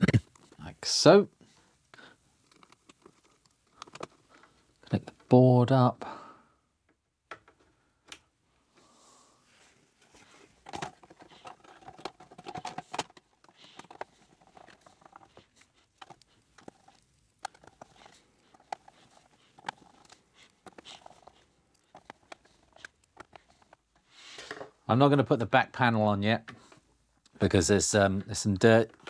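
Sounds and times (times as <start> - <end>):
hand screwdriver screwing: 2.4 - 4.4, 10.2 - 23.9.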